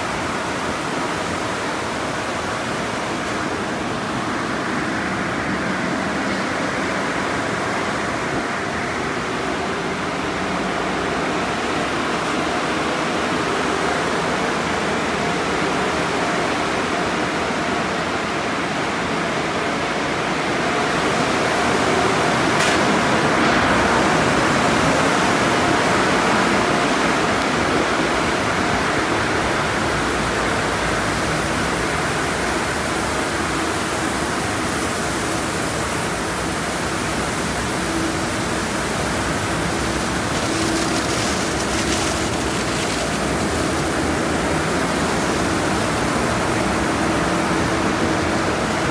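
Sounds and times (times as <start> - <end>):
water spray rushing: 29.6 - 48.6
spinning brushes scrubbing car: 37.0 - 47.6.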